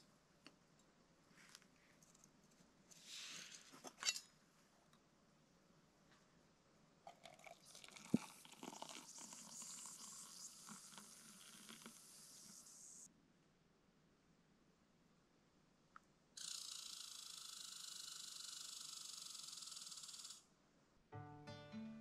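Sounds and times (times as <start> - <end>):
water pouring into mug: 7.1 - 13.0.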